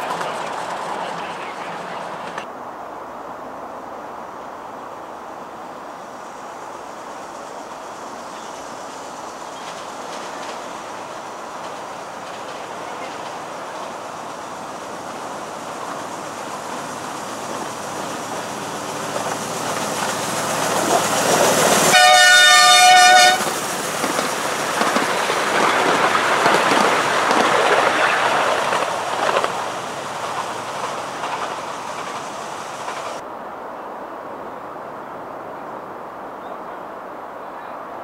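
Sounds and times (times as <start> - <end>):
miniature train wheels rumbling: 0.0 - 2.4, 7.2 - 33.2
locomotive horn blast: 21.9 - 23.5.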